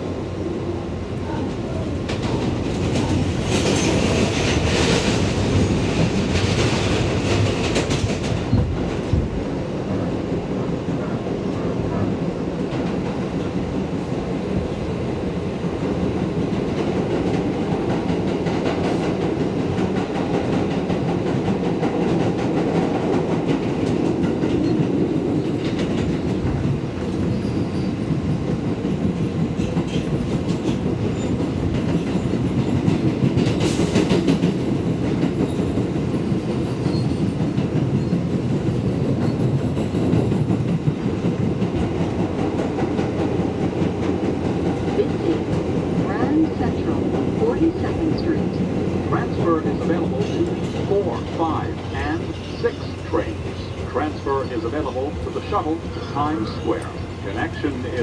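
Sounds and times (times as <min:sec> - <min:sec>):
subway train rumbling on rails: 0:00.0 - 0:58.0.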